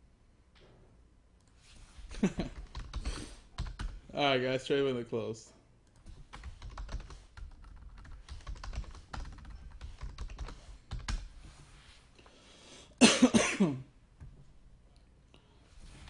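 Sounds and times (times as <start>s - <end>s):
typing on computer keyboard: 2.5s - 4.0s, 5.9s - 11.3s
person's voice: 4.1s - 5.6s.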